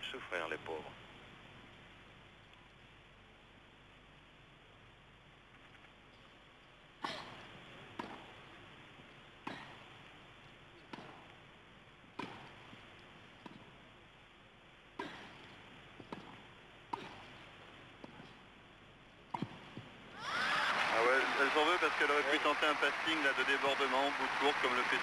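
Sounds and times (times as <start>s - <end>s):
faint steady hiss: 0.0s - 25.0s
tennis ball struck by rackets: 7.9s - 8.3s, 10.9s - 11.2s, 12.2s - 12.6s, 16.0s - 17.4s, 19.3s - 19.9s
tennis ball bouncing: 7.9s - 8.4s, 10.8s - 11.3s, 12.1s - 12.6s, 13.4s - 13.8s, 15.0s - 17.4s, 19.3s - 19.9s.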